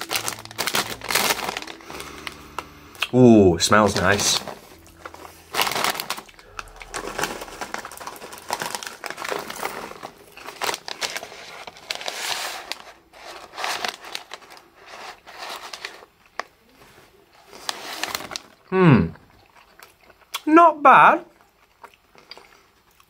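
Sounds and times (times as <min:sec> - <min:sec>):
chewing popcorn: 0:00.0 - 0:03.2, 0:03.8 - 0:20.5, 0:21.3 - 0:23.0
plastic bag crinkling: 0:00.0 - 0:16.2, 0:17.4 - 0:18.6.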